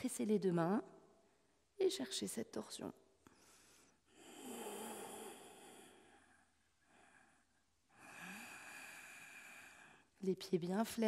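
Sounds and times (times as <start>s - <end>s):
woman breathing: 3.2s - 10.2s.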